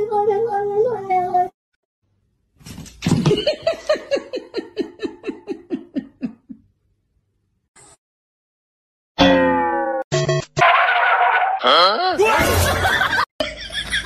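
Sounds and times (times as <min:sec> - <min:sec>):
person laughing: 0:03.2 - 0:06.6.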